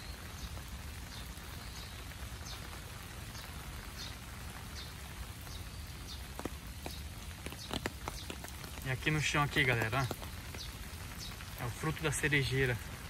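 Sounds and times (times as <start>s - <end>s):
rain on grass and trees: 0.0s - 13.0s
footsteps on wet ground: 3.4s - 13.0s.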